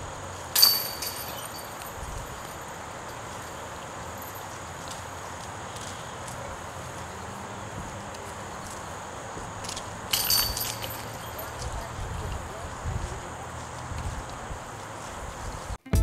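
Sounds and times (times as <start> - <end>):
disc golf chains jangling: 0.0 - 6.0, 9.5 - 14.4
outdoor background noise: 0.0 - 16.0.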